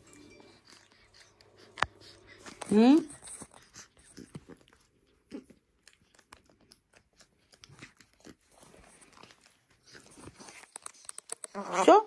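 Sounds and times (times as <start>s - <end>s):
small rustles: 1.0s - 11.6s.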